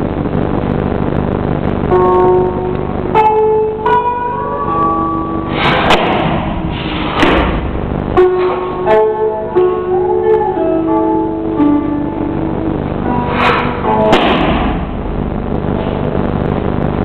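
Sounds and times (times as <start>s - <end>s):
plucked string music: 1.9s - 6.2s, 7.4s - 15.2s
rustling noise: 5.5s - 8.8s, 13.0s - 17.0s
sharp knock: 5.6s - 7.6s, 13.4s - 14.9s.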